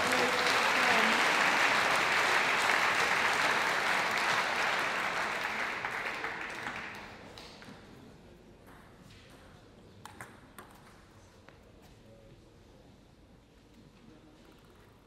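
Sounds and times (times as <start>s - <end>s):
spectators applauding in hall: 0.0s - 7.5s.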